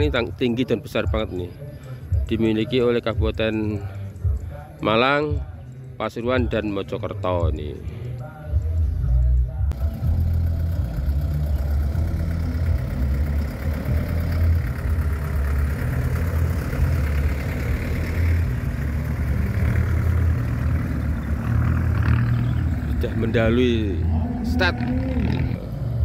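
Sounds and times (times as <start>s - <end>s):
off-road truck engines rumbling: 0.0s - 26.0s.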